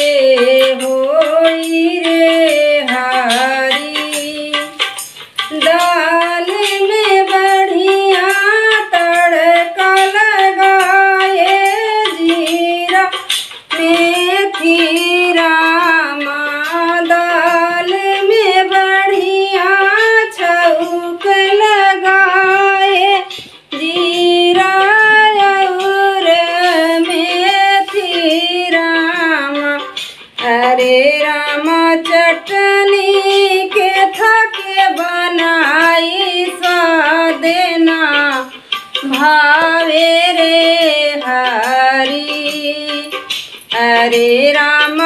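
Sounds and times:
woman singing solo: 5.5 - 45.0.

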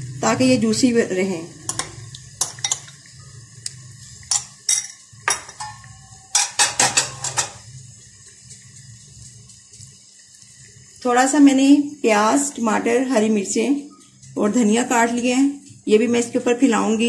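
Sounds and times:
utensils clinking on steel pot: 1.6 - 3.1, 4.2 - 7.7.

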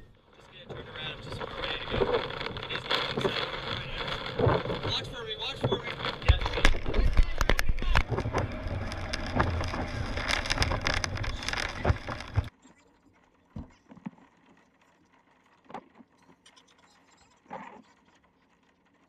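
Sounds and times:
wind buffeting microphone: 0.0 - 12.5.

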